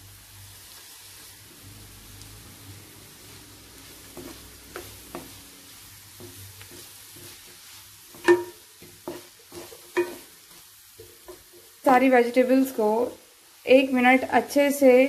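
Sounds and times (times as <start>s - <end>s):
vegetables sizzling in oil: 0.0s - 15.0s
spatula scraping and tapping pan: 3.6s - 11.8s
spatula clanking on pan: 4.1s - 5.5s, 6.1s - 11.7s.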